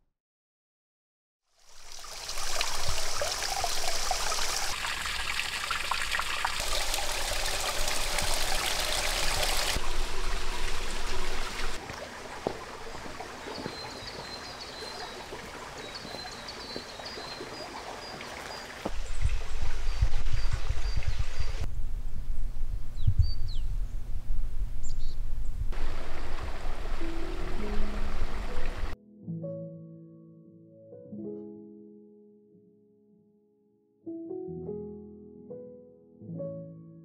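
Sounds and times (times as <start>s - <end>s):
stream water running: 1.5s - 21.7s, 25.7s - 29.0s.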